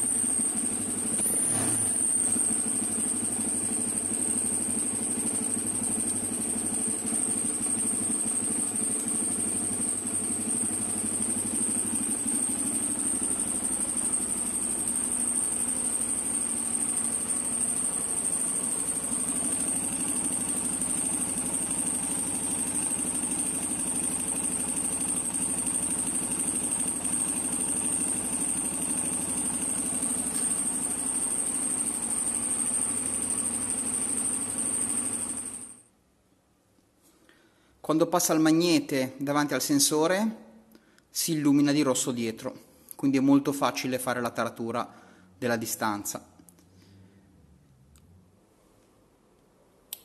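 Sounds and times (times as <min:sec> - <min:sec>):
motorcycle engine idling: 0:00.0 - 0:35.8.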